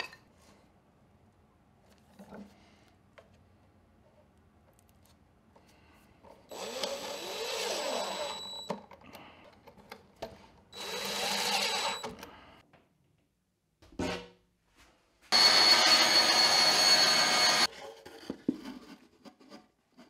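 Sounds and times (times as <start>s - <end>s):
cordless driver driving screws: 6.5s - 8.8s, 10.8s - 12.3s.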